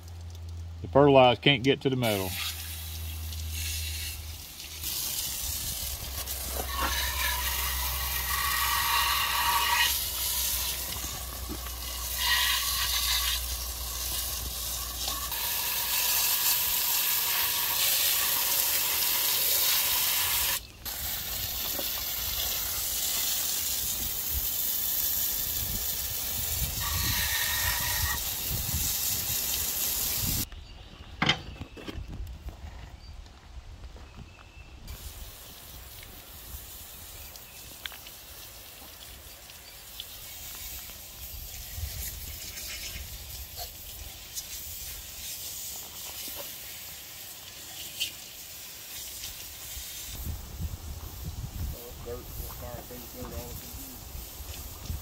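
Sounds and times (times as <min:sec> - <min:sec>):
hose nozzle spraying water on metal: 0:02.0 - 0:30.5, 0:34.9 - 0:50.3.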